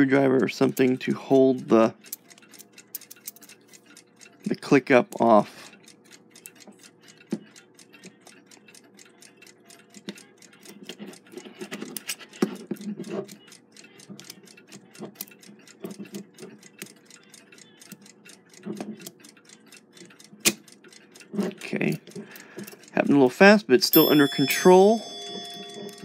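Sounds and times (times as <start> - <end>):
clock ticking: 0.0 - 26.0
metallic clicks and clatter: 2.0 - 4.0.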